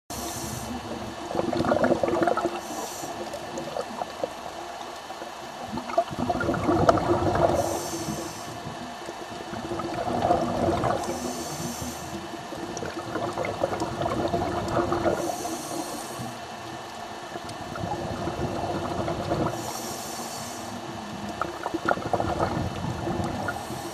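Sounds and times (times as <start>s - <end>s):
regulator inhale hiss: 0.1s - 1.1s, 2.5s - 3.6s, 7.4s - 8.8s, 11.0s - 12.5s, 15.0s - 16.6s, 19.4s - 21.3s, 23.0s - 23.9s
exhaled bubbles rushing: 0.1s - 20.0s, 21.0s - 23.9s.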